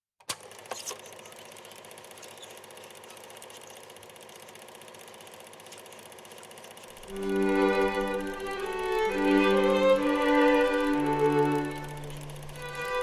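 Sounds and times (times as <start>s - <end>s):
film projector clattering: 0.2s - 13.0s
violin music: 7.0s - 13.0s.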